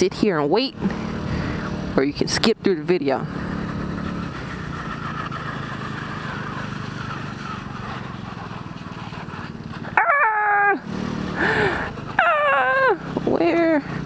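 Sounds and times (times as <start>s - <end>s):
road and wind noise: 0.0s - 14.0s
scooter engine running: 0.0s - 14.0s
high whining cry: 9.9s - 13.2s.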